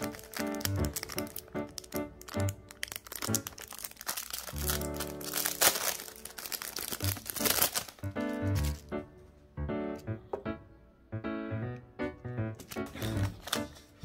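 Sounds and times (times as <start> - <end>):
plastic packaging crinkling: 0.0 - 9.0, 12.6 - 14.0
background music: 0.0 - 14.0.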